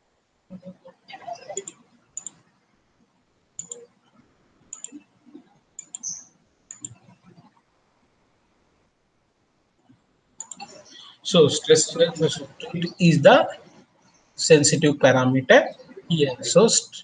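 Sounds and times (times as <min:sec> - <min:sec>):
computer mouse clicking: 0:01.5 - 0:02.5, 0:03.6 - 0:07.6, 0:10.4 - 0:10.8.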